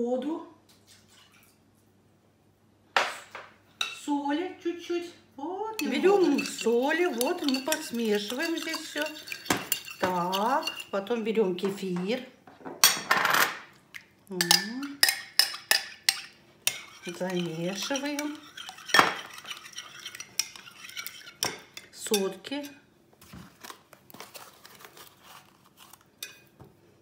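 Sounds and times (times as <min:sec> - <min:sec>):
spoon clinking against glass bowl: 0:05.8 - 0:11.0, 0:14.4 - 0:22.4.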